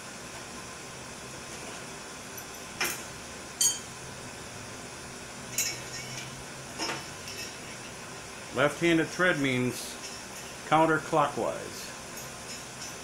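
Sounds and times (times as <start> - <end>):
small metal parts clinking: 5.5 - 7.9.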